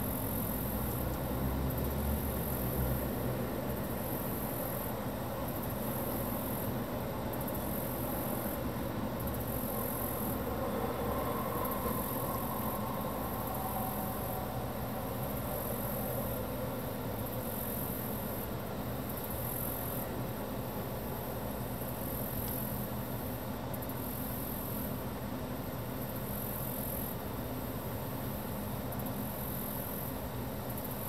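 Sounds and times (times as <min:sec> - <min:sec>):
distant aircraft engines rumbling: 0:04.9 - 0:19.2.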